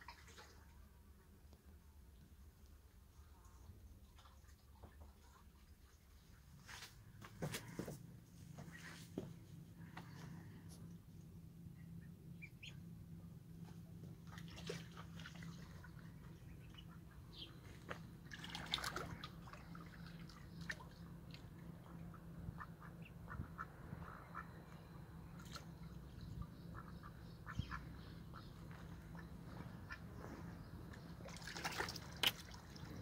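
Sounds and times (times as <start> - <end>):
ducks quacking: 21.8 - 24.7, 26.5 - 30.5.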